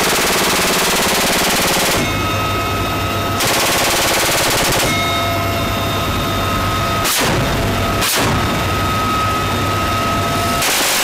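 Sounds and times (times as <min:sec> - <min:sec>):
minigun firing bursts: 0:00.0 - 0:02.1, 0:03.4 - 0:04.9, 0:10.6 - 0:11.0
helicopter engine whine and rotor hum: 0:00.0 - 0:11.0.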